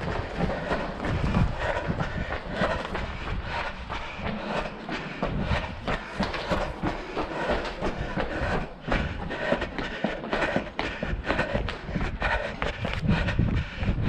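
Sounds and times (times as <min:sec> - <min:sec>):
running footsteps on concrete: 0:00.0 - 0:14.0.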